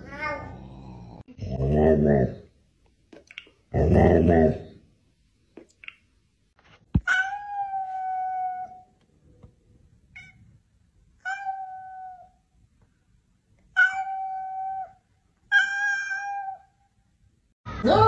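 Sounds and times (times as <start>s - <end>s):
cat yowling: 7.1s - 8.8s, 11.2s - 12.4s, 13.8s - 16.7s.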